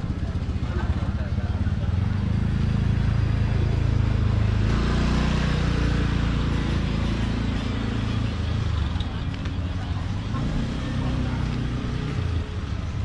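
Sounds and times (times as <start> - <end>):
street traffic: 0.0 - 13.0
vehicle engine running: 0.0 - 13.0.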